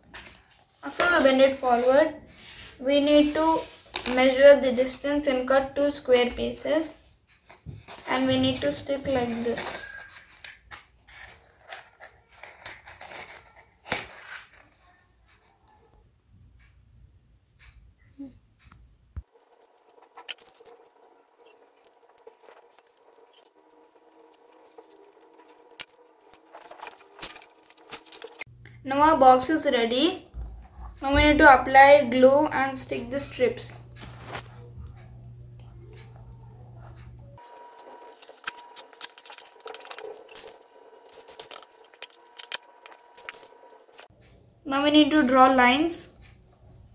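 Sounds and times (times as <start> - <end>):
paper rustling: 7.5 - 15.0, 19.2 - 28.5, 36.9 - 44.1
hands handling cardboard clicks: 19.2 - 28.4.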